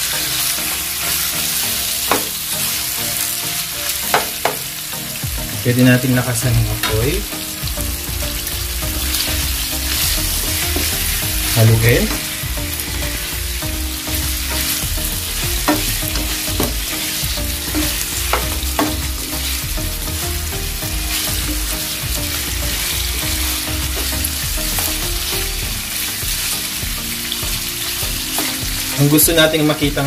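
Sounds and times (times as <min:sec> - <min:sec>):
chicken sizzling in hot oil: 0:00.0 - 0:30.0
spatula scraping a frying pan: 0:09.0 - 0:20.0.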